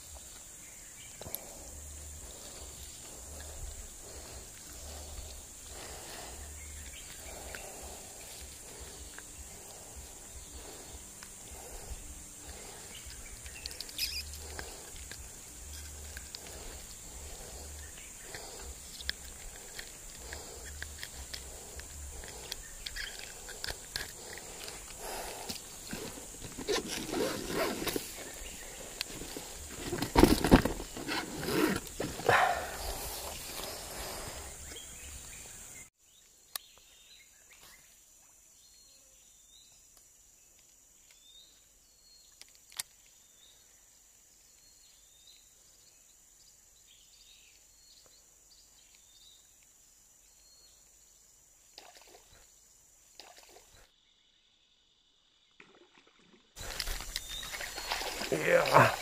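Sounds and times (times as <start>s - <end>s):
rustling over dry leaves: 1.3s - 34.7s, 56.6s - 59.0s
faint high chirps: 12.9s - 14.4s.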